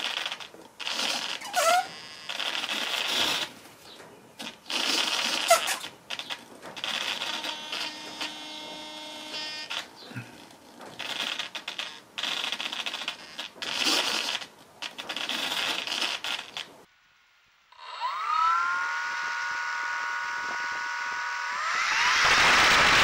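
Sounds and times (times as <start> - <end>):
servos buzzing: 0.0 - 16.8, 17.8 - 23.0
electric motor and propeller whine: 6.8 - 9.9, 17.8 - 23.0.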